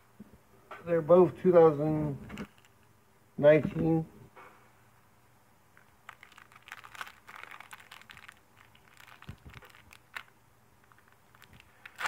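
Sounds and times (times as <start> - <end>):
cards and wrapper rustling: 2.3 - 2.8, 5.8 - 12.0.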